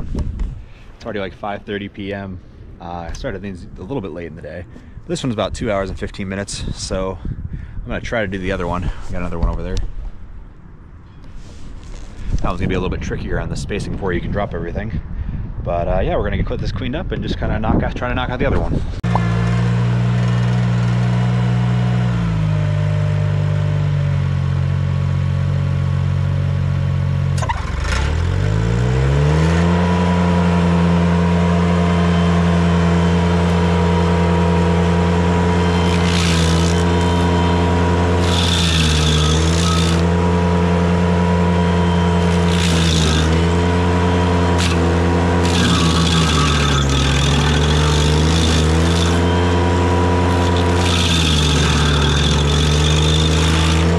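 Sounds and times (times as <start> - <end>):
stump grinder grinding: 19.0 - 53.9
tractor engine running: 19.0 - 53.9.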